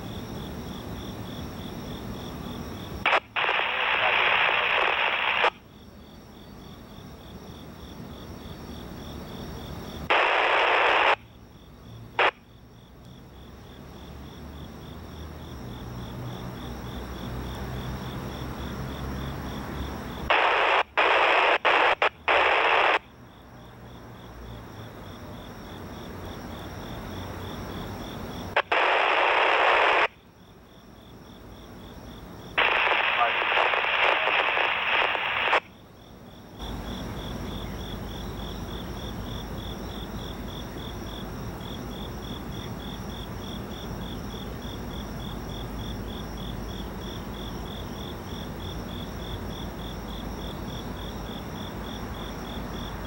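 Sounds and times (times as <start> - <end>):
crickets chirping: 0.0 - 53.0
radio scanner static bursts: 3.0 - 5.6, 10.1 - 11.3, 12.2 - 12.4, 20.3 - 23.1, 28.6 - 30.2, 32.6 - 35.7.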